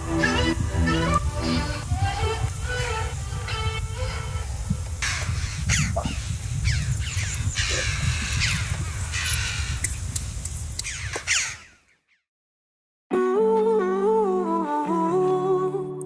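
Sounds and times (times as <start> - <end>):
crows calling: 0.0 - 10.0, 10.8 - 12.2.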